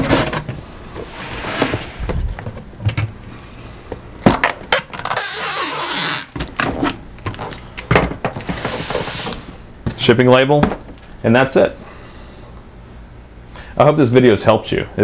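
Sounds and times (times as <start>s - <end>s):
packing tape ripping off roll: 4.3s - 7.6s.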